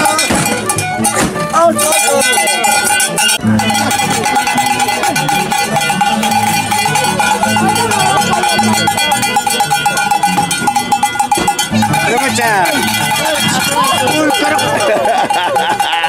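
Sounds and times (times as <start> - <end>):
harps playing: 0.0 - 16.0.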